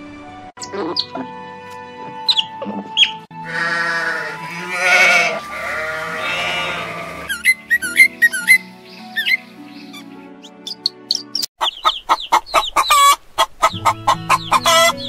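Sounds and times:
background music: 0:00.0 - 0:12.9, 0:13.6 - 0:15.0
sheep bleating: 0:03.4 - 0:07.4
bird chirping: 0:06.2 - 0:15.0.

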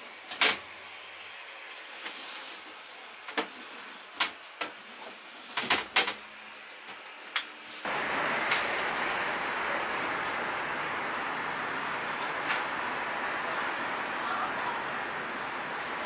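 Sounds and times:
steady rushing noise: 0:07.8 - 0:16.0.

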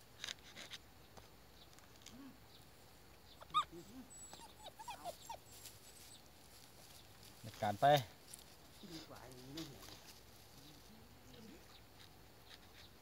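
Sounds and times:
dog whining and yelping: 0:03.4 - 0:06.2.

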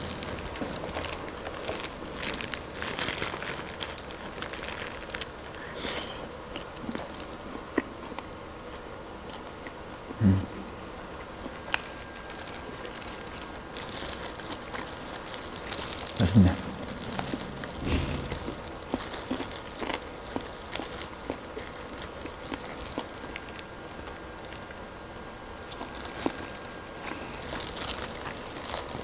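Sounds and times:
crunching fried chicken wing: 0:00.0 - 0:09.8, 0:11.3 - 0:24.9, 0:25.6 - 0:29.0
person humming low: 0:10.2 - 0:10.6.

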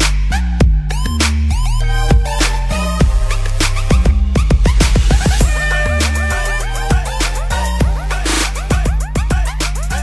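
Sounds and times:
electronic music with deep bass: 0:00.0 - 0:10.0
steady drum beat: 0:02.1 - 0:10.0.

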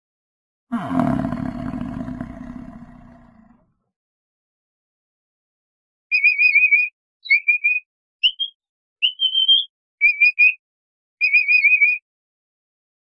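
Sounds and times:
capybara whistled chirps: 0:06.1 - 0:10.6, 0:11.2 - 0:12.0.

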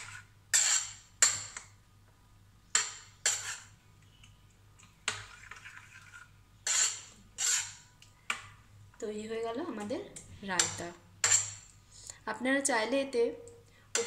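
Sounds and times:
metal spoon scraping ceramic bowl: 0:00.0 - 0:01.6, 0:02.8 - 0:03.8, 0:05.2 - 0:07.9, 0:10.6 - 0:11.7.

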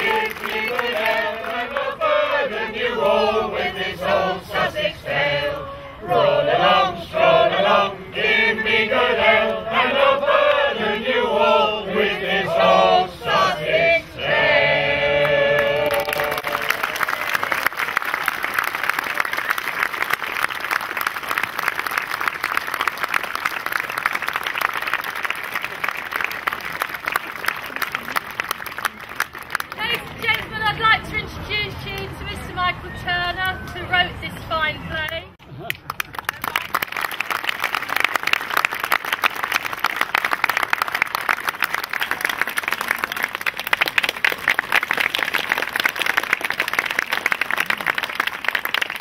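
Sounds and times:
audience applause: 0:00.0 - 0:01.6, 0:15.5 - 0:30.4, 0:35.7 - 0:49.0
mixed voices singing in chorus: 0:00.0 - 0:17.0.

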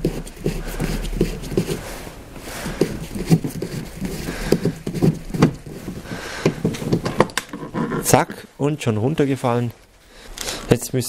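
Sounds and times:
tool knocking on hard plastic: 0:03.2 - 0:07.4.

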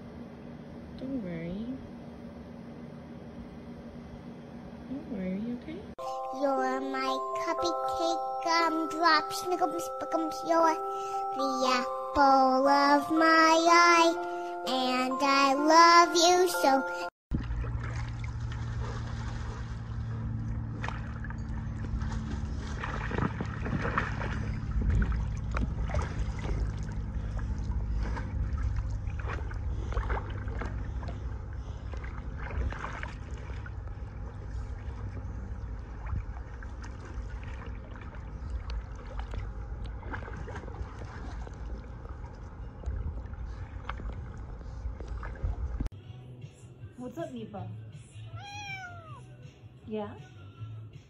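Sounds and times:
pool water lapping and splashing: 0:17.3 - 0:45.9
steady low rumble: 0:17.3 - 0:45.9.

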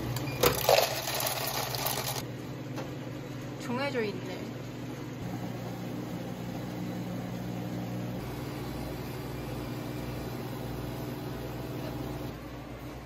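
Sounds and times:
coffee machine pump humming: 0:00.0 - 0:02.3, 0:05.2 - 0:13.0.

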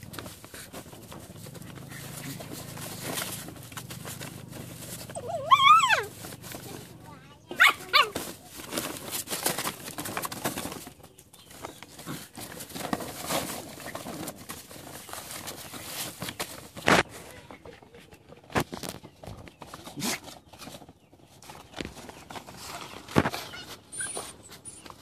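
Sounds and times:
dogs rustling on plastic tarp: 0:00.0 - 0:17.5.

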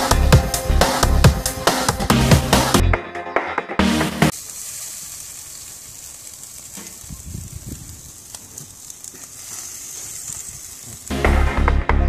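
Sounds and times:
burger patties sizzling on grill: 0:04.2 - 0:11.7.

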